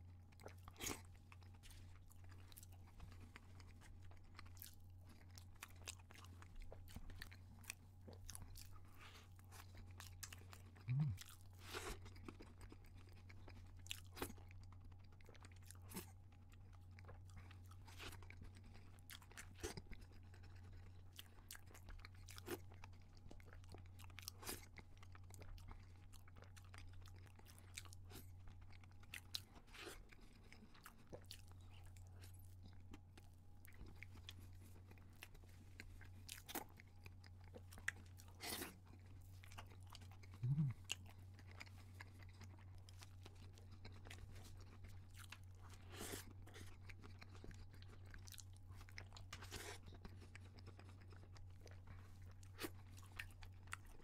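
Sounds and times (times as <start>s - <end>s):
steady low hum: 0.0s - 14.2s, 27.5s - 54.0s
chewing and crunching: 0.0s - 54.0s
wet mouth clicks: 40.4s - 40.8s.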